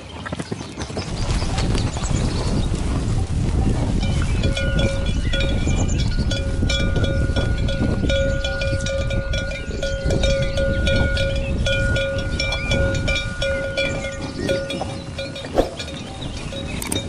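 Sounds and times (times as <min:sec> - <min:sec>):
cowbells clanking: 0:04.0 - 0:17.0.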